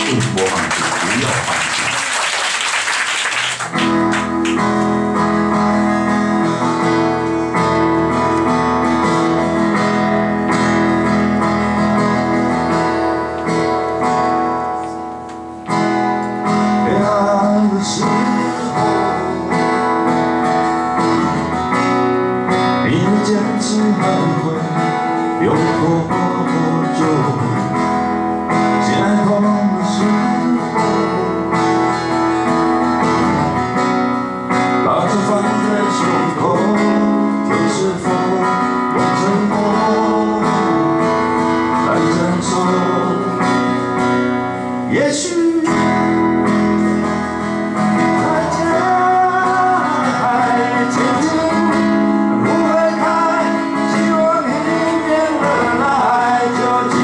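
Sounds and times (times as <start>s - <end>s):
man singing: 0.0s - 1.5s, 16.5s - 20.1s, 22.8s - 32.1s, 34.7s - 44.0s, 44.8s - 46.3s, 47.8s - 57.0s
guitars strummed and picked: 0.0s - 57.0s.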